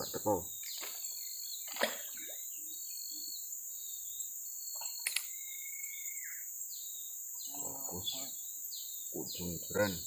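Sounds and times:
birds whistling: 0.0 - 10.0
high-pitched insect drone: 2.4 - 10.0
sharp click: 5.0 - 5.3.

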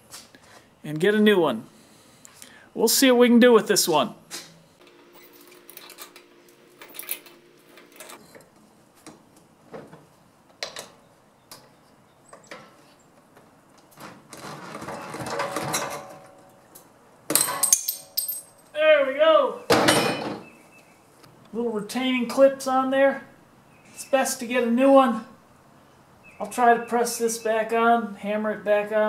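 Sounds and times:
tools scraping on metal hub: 6.8 - 8.5
loud metallic clank: 19.7 - 20.5.

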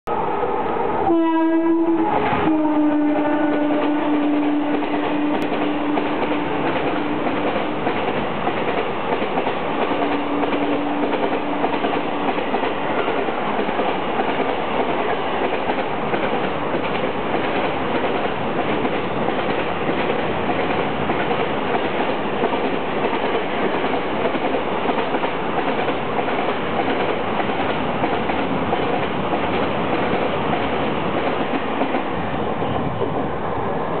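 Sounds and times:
locomotive horn: 1.0 - 7.4, 10.0 - 11.8
freight train wagons passing: 1.1 - 34.0.

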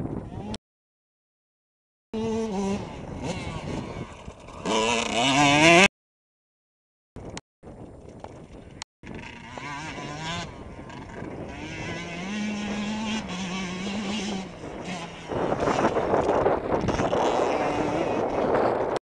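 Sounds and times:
motocross bike revving: 2.2 - 5.9, 9.1 - 19.0.

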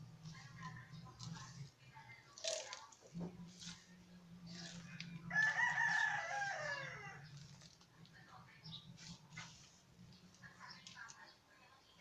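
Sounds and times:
rooster crowing: 5.3 - 7.3.

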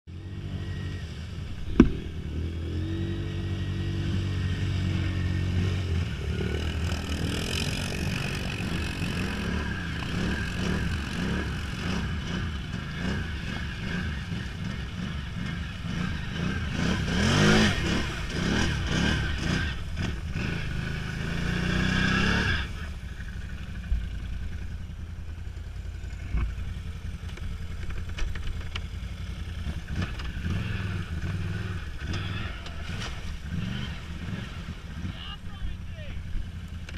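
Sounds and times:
atv engine revving: 0.1 - 36.9
sharp knock: 1.7 - 2.1.

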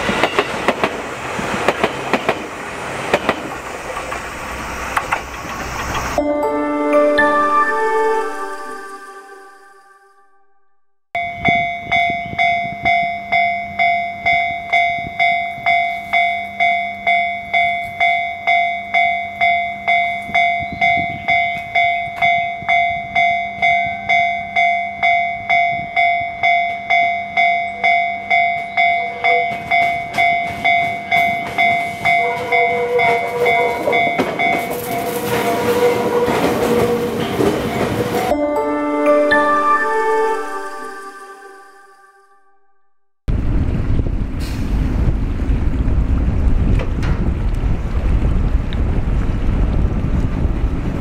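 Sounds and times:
train wheel and motor noise: 0.0 - 6.2, 28.2 - 38.3, 43.3 - 51.0
level crossing bell ringing: 6.2 - 10.2, 37.8 - 42.6.

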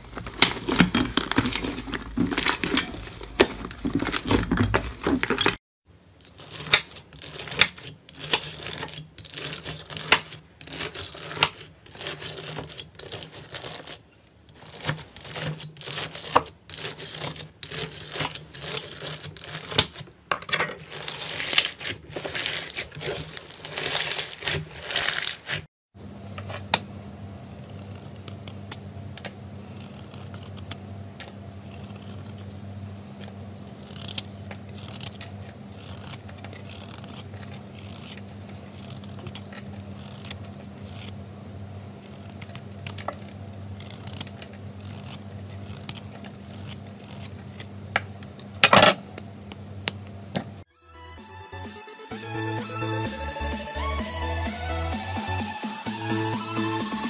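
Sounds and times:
card scraping foam: 29.6 - 30.8, 31.6 - 41.2.

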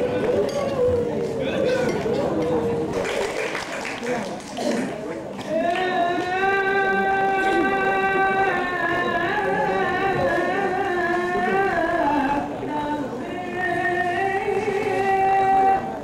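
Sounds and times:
person singing long notes: 5.5 - 16.0.

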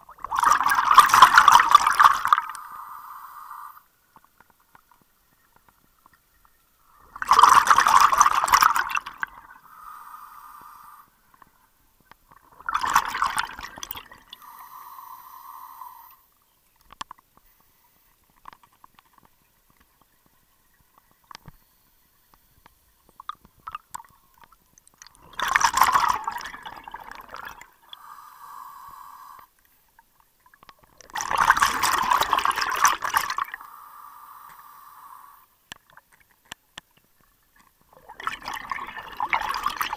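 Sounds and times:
exhaled bubbles gushing: 0.0 - 2.6, 7.0 - 9.6, 12.3 - 14.4, 25.0 - 27.9, 30.8 - 33.6, 37.9 - 39.9.

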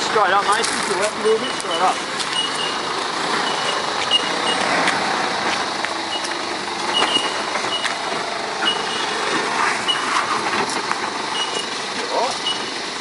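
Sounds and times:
vehicle engine running: 0.0 - 13.0
short high-pitched beeps: 3.4 - 4.6, 8.6 - 9.1.

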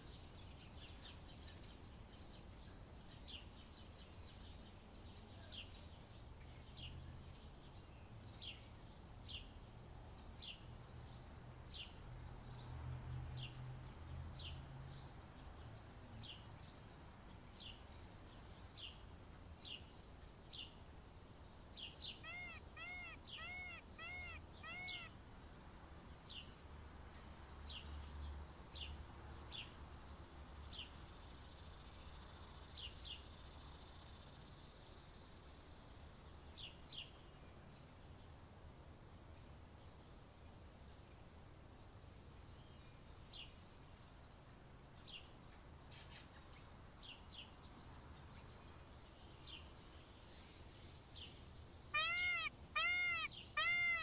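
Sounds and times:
small bird chirping: 21.8 - 25.2, 45.9 - 47.6, 48.3 - 54.0
bird calling arched notes: 22.2 - 25.2, 51.9 - 54.0.

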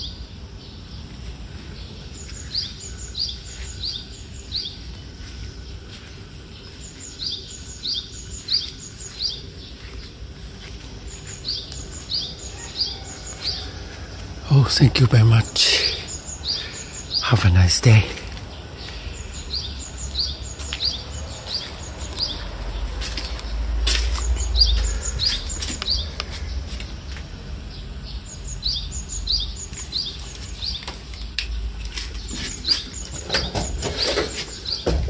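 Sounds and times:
bird chirping: 0.0 - 35.0.

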